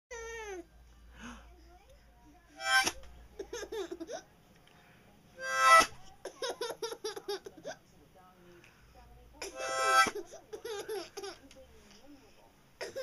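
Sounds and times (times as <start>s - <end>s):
harmonica chords: 2.6s - 3.0s, 5.4s - 6.0s, 9.4s - 10.2s
baby laughing: 3.4s - 4.2s, 6.2s - 7.8s, 10.0s - 11.4s.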